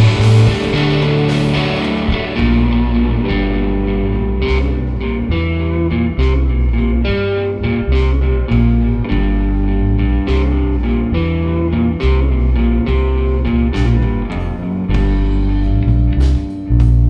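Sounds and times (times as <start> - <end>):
sharp cymbal and drum hits: 0.0 - 2.9
drums: 0.0 - 17.0
electric guitar: 0.0 - 17.0
low bass notes: 0.0 - 17.0.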